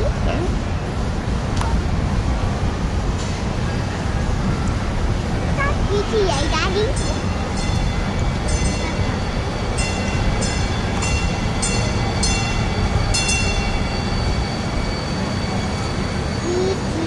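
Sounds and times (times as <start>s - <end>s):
light rail train rumbling: 0.0s - 17.0s
steady high whine: 0.0s - 17.0s
train warning bell ringing: 6.4s - 17.0s.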